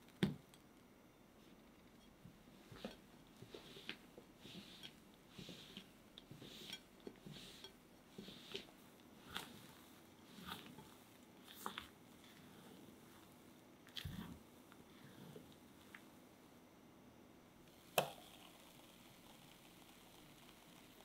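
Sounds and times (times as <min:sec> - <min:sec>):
spatula swishing through batter: 0:02.6 - 0:15.5.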